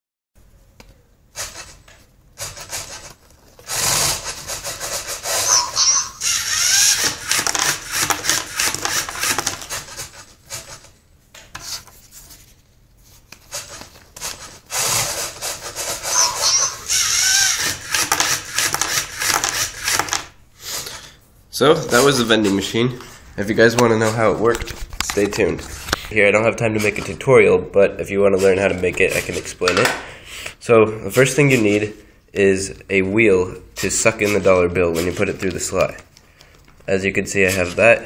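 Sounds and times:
plastic gears grinding: 0:02.4 - 0:10.8, 0:14.6 - 0:20.4
motor whine: 0:16.1 - 0:18.0.

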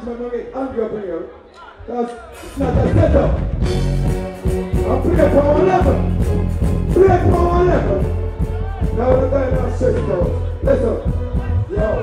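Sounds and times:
reggae backing track with heavy bass: 0:02.2 - 0:12.0.

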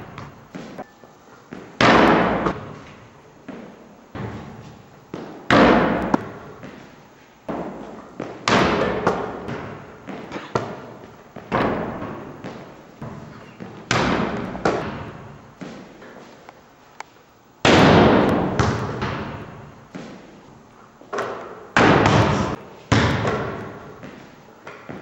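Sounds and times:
basketball hitting backboard and rim: 0:00.0 - 0:00.8, 0:01.5 - 0:16.0, 0:17.6 - 0:20.4, 0:21.1 - 0:25.0
basketball bouncing on hard floor: 0:00.0 - 0:00.9, 0:03.5 - 0:06.9, 0:07.5 - 0:15.9, 0:17.7 - 0:20.3, 0:21.1 - 0:25.0.

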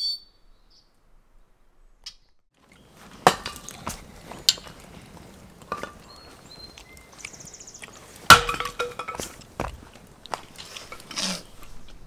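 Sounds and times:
sharp knocks and clinks: 0:08.3 - 0:09.4.

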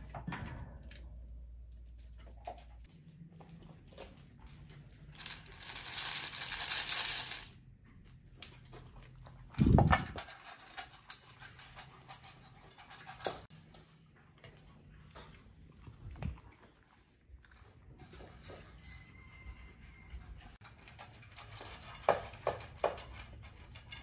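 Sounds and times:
dry kibble rattling in bowl: 0:04.0 - 0:07.6, 0:09.4 - 0:13.5, 0:20.1 - 0:24.0
dog eating kibble: 0:07.9 - 0:18.8.

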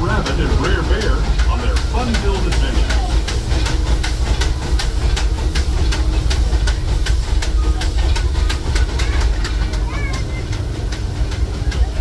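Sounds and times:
steam locomotive chuffing: 0:00.0 - 0:12.0
train cars rumbling on rails: 0:00.0 - 0:12.0.

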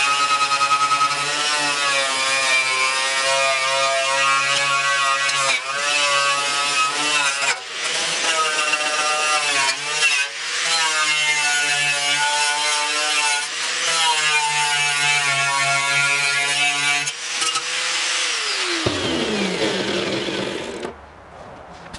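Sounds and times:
angle grinder whine: 0:17.1 - 0:21.0.

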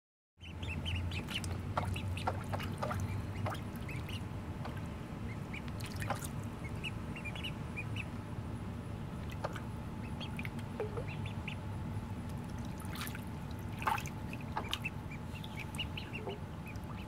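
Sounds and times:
ducklings peeping: 0:00.4 - 0:17.0
low steady hum: 0:00.4 - 0:17.0
splashing in shallow water: 0:01.2 - 0:04.8, 0:05.7 - 0:06.5, 0:12.4 - 0:17.0.

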